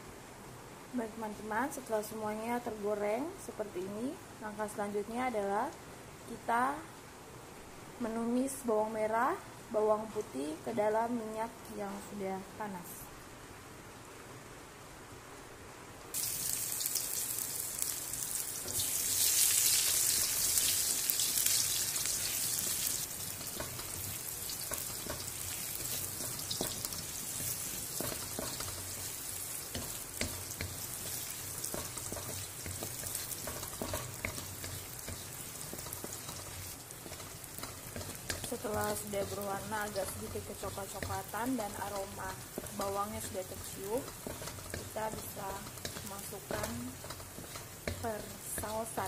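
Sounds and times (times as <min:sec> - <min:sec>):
shallots and garlic sizzling in oil: 0:01.0 - 0:06.5, 0:16.1 - 0:49.0.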